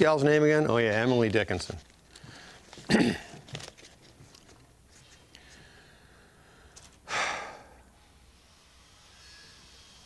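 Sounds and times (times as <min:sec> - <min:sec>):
short hissing burst: 0:08.0 - 0:10.0.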